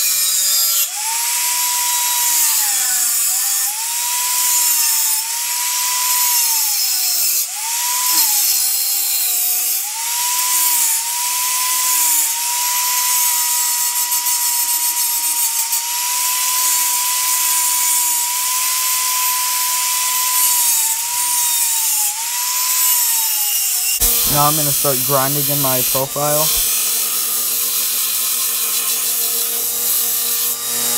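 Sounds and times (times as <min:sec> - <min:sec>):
grinding hiss: 0:24.0 - 0:30.6
angle grinder motor whining: 0:26.5 - 0:30.9.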